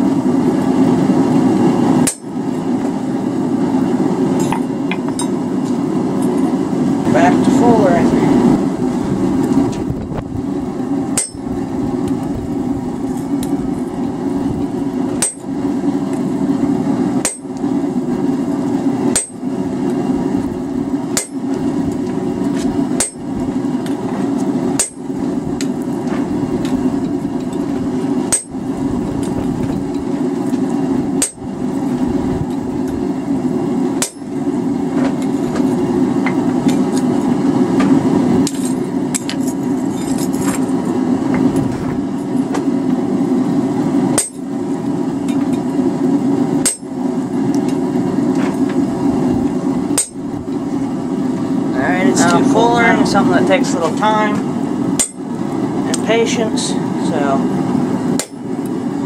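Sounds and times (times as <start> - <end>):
steady low drone: 0.0 - 59.0
hammer blows on anvil tool: 11.2 - 11.4.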